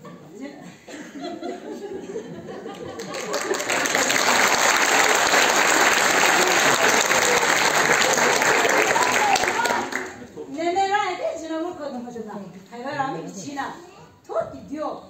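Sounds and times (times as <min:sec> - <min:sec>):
audience voices: 0:01.8 - 0:10.5
audience clapping: 0:02.7 - 0:10.3.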